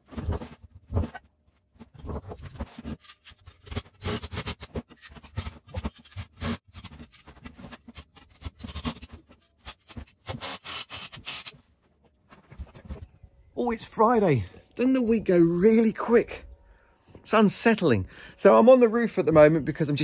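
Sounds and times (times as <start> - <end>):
objects scraping and knocking: 0.0 - 3.6.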